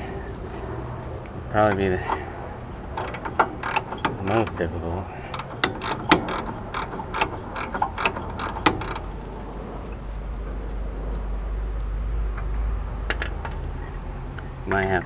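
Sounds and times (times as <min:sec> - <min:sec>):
low steady rumble: 0:00.0 - 0:15.0
metal bolt clicking: 0:02.9 - 0:04.7, 0:05.3 - 0:09.2.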